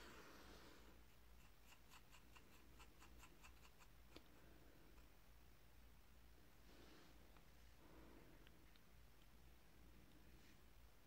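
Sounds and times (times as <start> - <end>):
low electrical hum: 0.0 - 11.0
paintbrush ticking in palette: 1.4 - 4.2.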